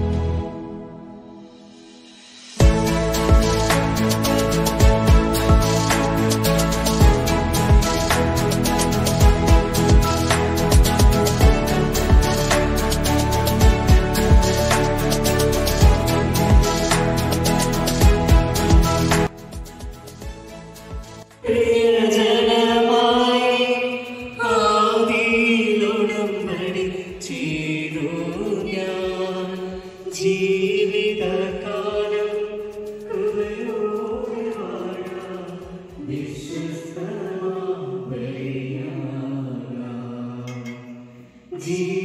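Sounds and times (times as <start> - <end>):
person chanting: 21.4 - 40.9, 41.5 - 42.0.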